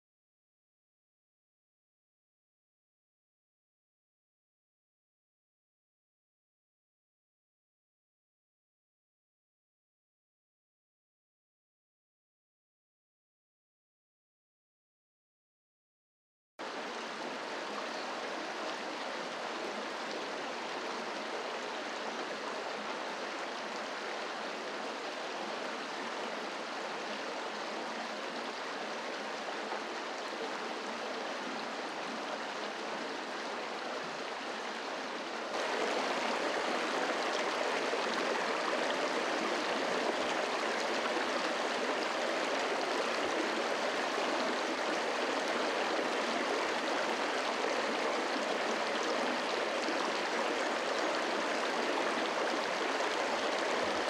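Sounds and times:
creek water flowing over rocks: 0:16.6 - 0:54.0.

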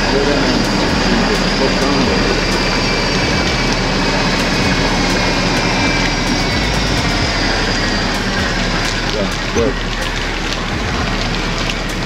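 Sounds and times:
golf cart moving in rain: 0:00.0 - 0:12.0.

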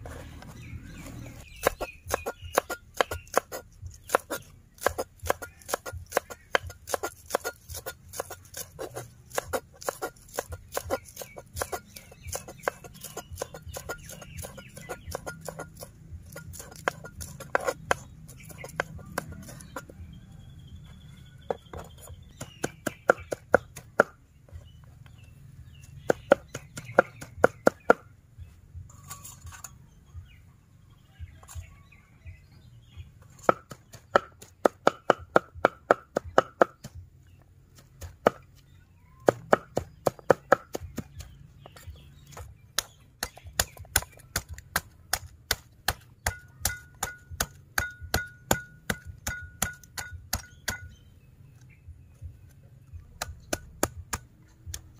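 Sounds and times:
cleaver chopping on wooden board: 0:01.5 - 0:19.9, 0:21.4 - 0:24.2, 0:26.0 - 0:28.0, 0:33.4 - 0:37.0, 0:38.0 - 0:38.4, 0:39.2 - 0:51.0, 0:53.2 - 0:54.8.

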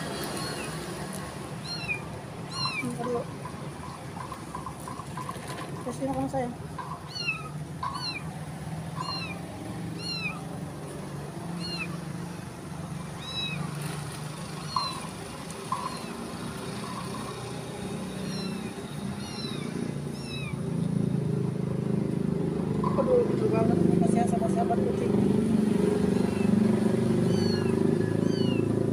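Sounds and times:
kittens mewing: 0:01.5 - 0:03.4, 0:06.8 - 0:10.6, 0:11.4 - 0:12.0, 0:13.2 - 0:13.7, 0:15.7 - 0:17.3, 0:17.9 - 0:20.8, 0:26.1 - 0:28.7.

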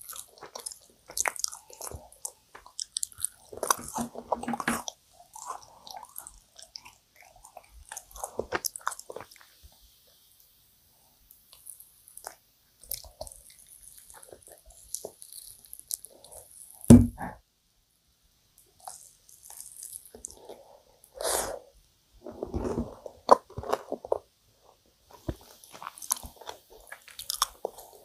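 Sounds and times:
wet chewing and smacking: 0:00.0 - 0:09.6, 0:11.5 - 0:16.9, 0:18.8 - 0:20.6, 0:25.1 - 0:28.0
crackly sticky food handling: 0:00.0 - 0:10.2, 0:11.4 - 0:16.9, 0:18.7 - 0:20.8, 0:22.2 - 0:28.0
sharp thump: 0:16.9 - 0:17.3.

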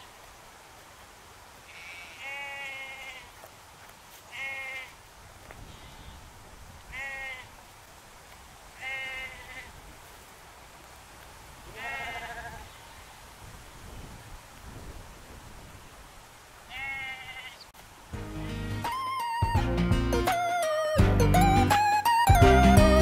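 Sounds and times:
sheep bleating: 0:01.7 - 0:03.4, 0:04.3 - 0:05.0, 0:06.9 - 0:07.5, 0:08.8 - 0:09.7, 0:11.7 - 0:12.7, 0:16.7 - 0:17.6.

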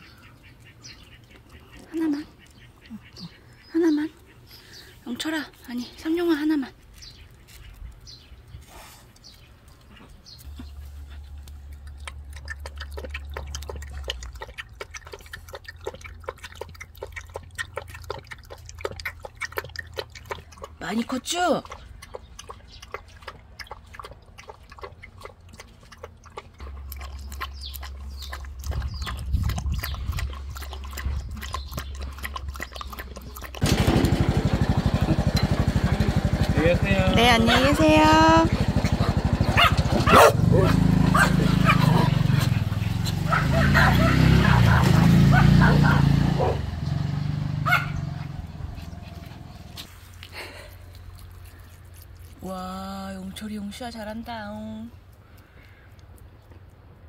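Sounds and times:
puppy lapping milk: 0:09.0 - 0:33.9, 0:48.3 - 0:56.8
engine running with fast beat: 0:33.6 - 0:49.8.

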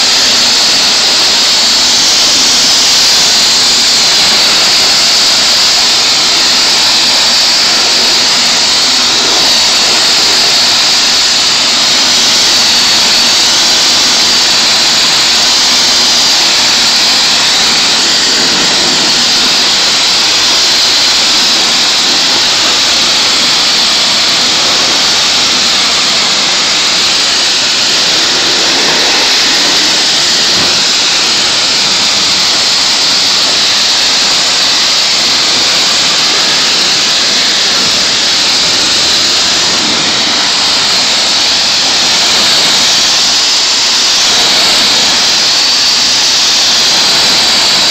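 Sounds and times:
pressure washer spraying water: 0:00.0 - 0:47.9.

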